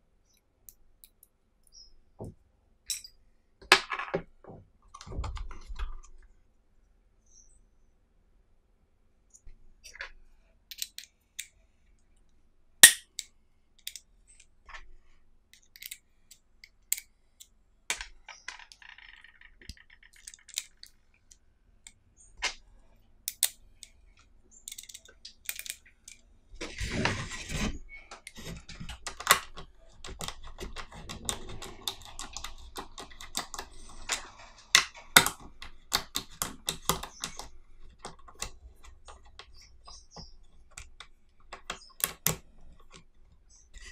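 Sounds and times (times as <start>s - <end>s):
screwdriver bits clicking: 10.7s - 11.5s, 12.8s - 14.5s, 15.5s - 17.5s, 23.3s - 23.9s, 24.6s - 26.2s.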